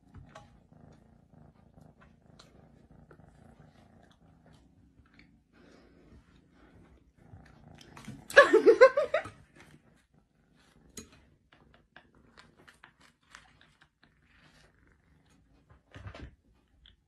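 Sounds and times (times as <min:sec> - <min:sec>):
kitten purring: 0:00.0 - 0:17.0
woman laughing: 0:08.3 - 0:09.4
kitten biting pizza crust: 0:12.1 - 0:14.7.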